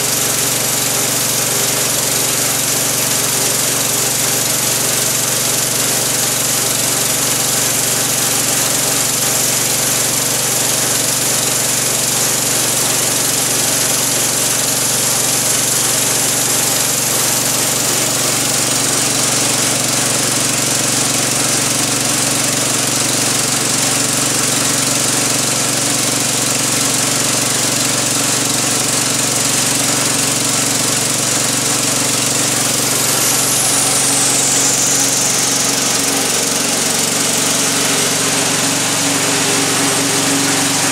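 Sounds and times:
band sawmill cutting log: 0.0 - 40.9
high whine sliding down: 32.5 - 40.9.

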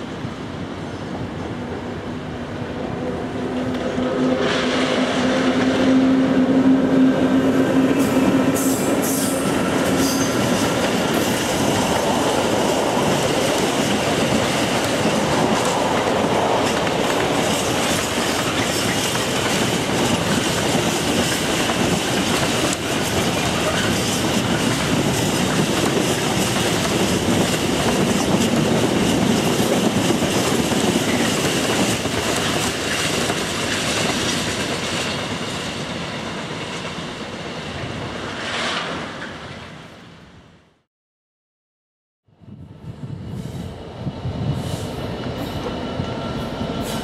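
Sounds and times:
train wheels clattering: 7.9 - 35.2.

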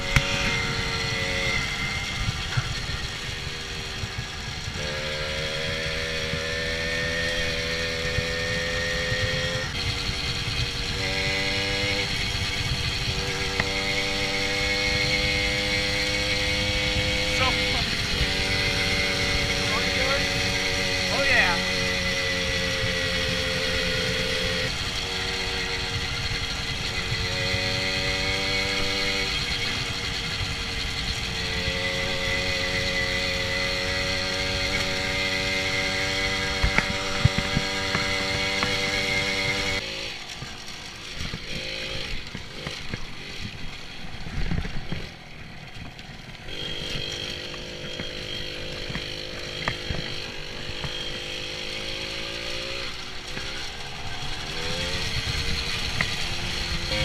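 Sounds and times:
wind rush on microphone: 0.0 - 39.8
moped engine running: 0.0 - 57.0.

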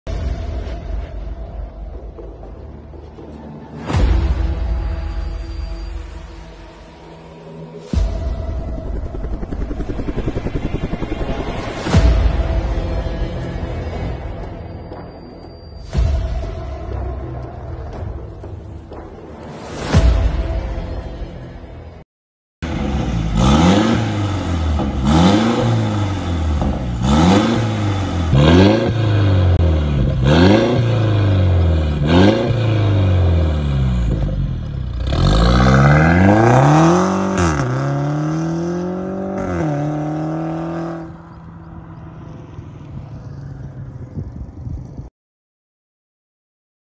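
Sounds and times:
car engine revving: 22.6 - 45.0.

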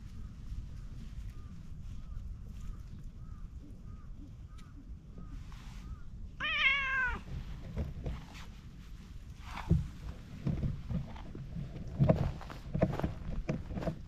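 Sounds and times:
cat meowing: 6.4 - 7.3.

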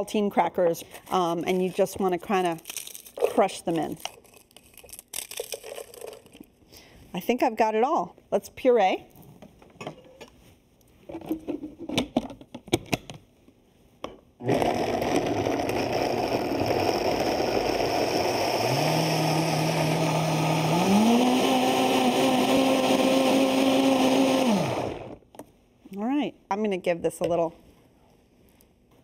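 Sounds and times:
blender motor whine: 14.4 - 25.2.

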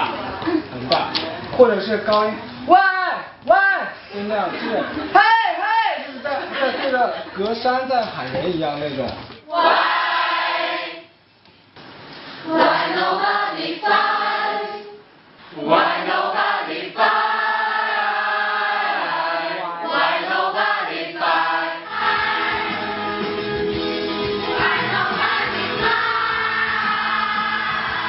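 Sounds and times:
choir singing and shouting: 9.5 - 11.1, 12.4 - 28.0.

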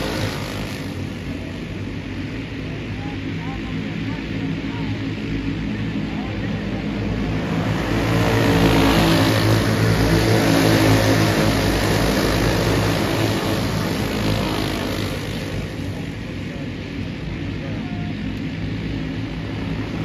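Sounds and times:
race car engines passing: 0.0 - 4.4, 5.1 - 20.0.

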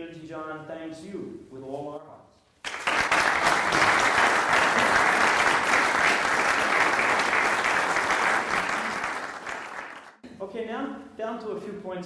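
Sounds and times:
audience applauding: 2.6 - 10.2.

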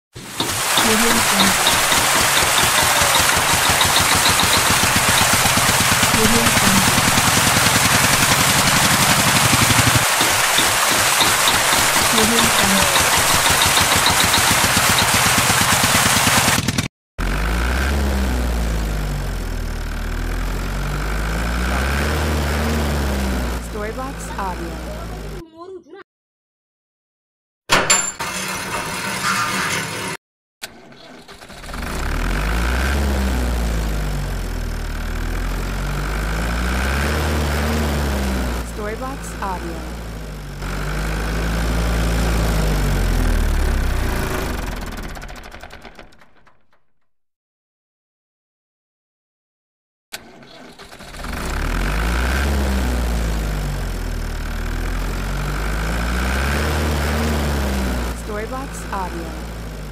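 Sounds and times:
motor humming: 0.2 - 15.6
model tractor motor droning: 0.2 - 25.4, 31.2 - 46.8, 50.2 - 59.9.

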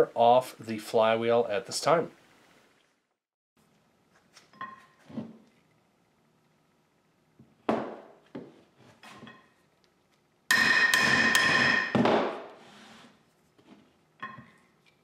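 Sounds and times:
hammer striking steel: 10.5 - 12.5.

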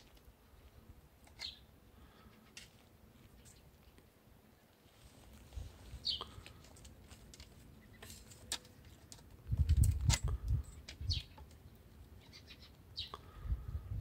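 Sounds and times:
high bird chirps: 1.4 - 1.7, 6.0 - 6.3, 12.2 - 13.2.

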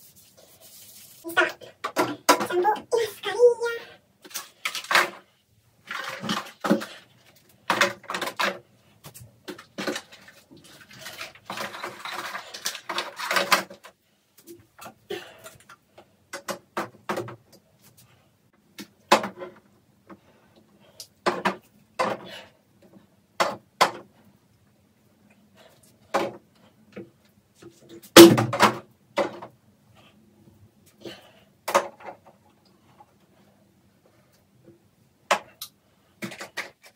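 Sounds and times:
rubbing and shuffling: 0.0 - 1.6.

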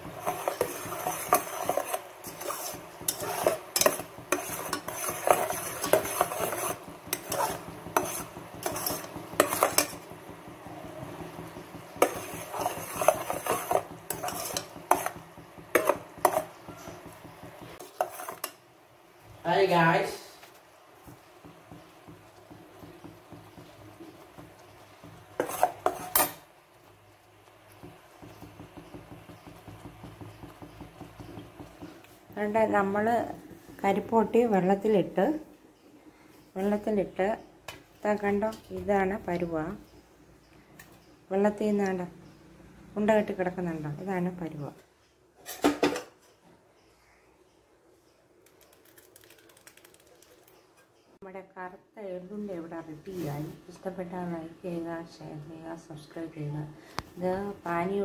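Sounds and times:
metal spoon scraping pan: 0.0 - 18.6, 22.4 - 26.5
faint sizzle: 0.0 - 58.0.

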